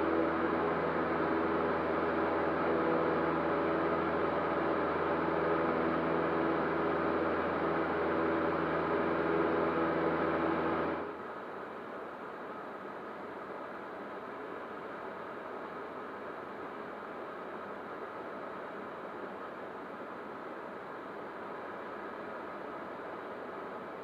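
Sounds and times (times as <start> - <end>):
airplane engine and propeller droning: 0.0 - 11.2.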